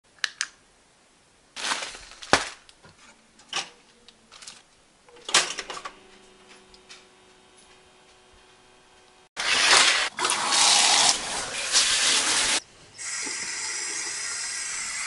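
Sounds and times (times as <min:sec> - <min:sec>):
handling rustles and knocks: 0:01.6 - 0:04.8.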